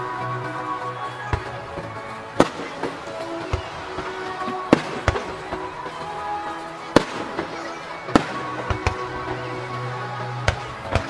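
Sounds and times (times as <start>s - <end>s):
music: 0.0s - 11.0s
fireworks bangs: 1.3s - 9.5s.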